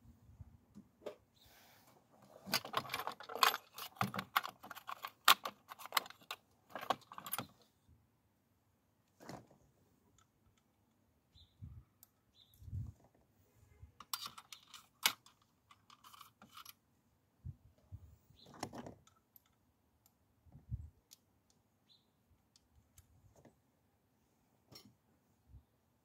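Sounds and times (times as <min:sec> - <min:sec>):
metallic clicks and rattles: 0:02.4 - 0:07.6, 0:14.0 - 0:16.8.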